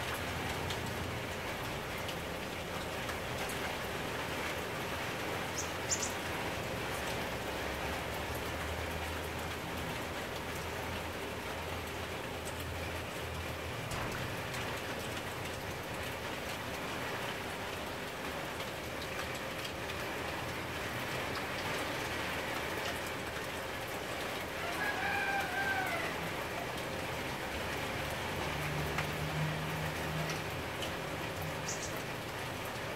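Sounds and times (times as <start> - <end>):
sprinkler water hissing on leaves: 13.8 - 32.9.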